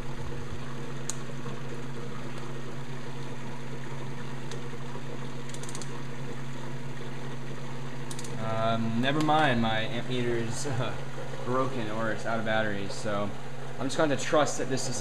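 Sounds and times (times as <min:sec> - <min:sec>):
pump and fan electric hum: 0:00.0 - 0:15.0
faint clicks: 0:01.0 - 0:01.2, 0:08.0 - 0:08.4.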